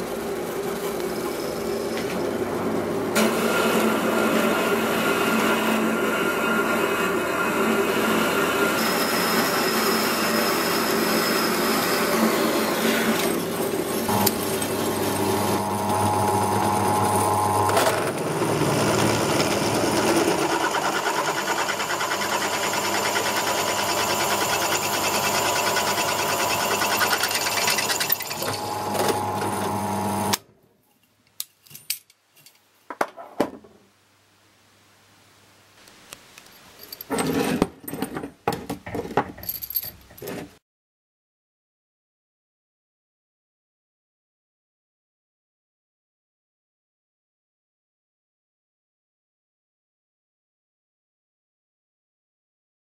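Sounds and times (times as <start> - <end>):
bandsaw cutting steel: 3.2 - 30.4
drill press boring steel: 3.2 - 30.4
clicks and knocks of steel handled: 31.0 - 32.7.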